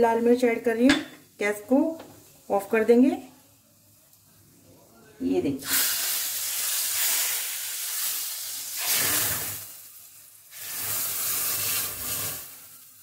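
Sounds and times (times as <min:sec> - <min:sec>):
hot oil sizzling: 0:05.6 - 0:13.0.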